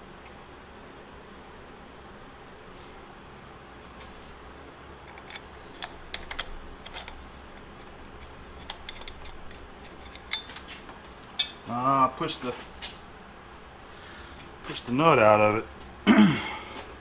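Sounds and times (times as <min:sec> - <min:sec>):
metal hardware clicking: 0:05.1 - 0:07.2, 0:08.6 - 0:10.7.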